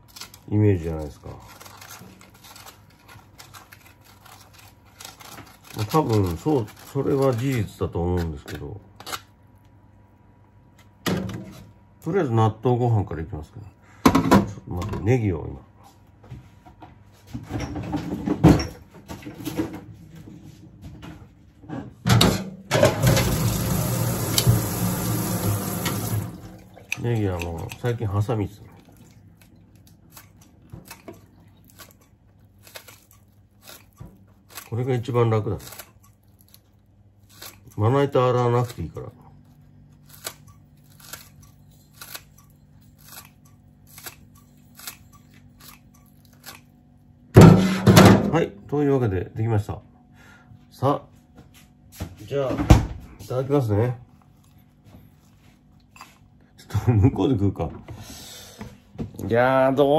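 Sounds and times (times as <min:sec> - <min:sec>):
kitchen handling knocks and rustles: 0:16.4 - 0:23.4, 0:47.4 - 0:48.3, 0:52.0 - 0:53.2
tap water running into sink: 0:22.9 - 0:26.8
scissors snipping green onion: 0:26.9 - 0:28.0, 0:40.0 - 0:46.7.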